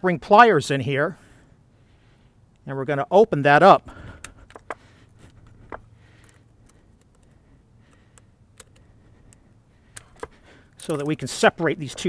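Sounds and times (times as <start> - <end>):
faint metal clicks: 4.1 - 12.0.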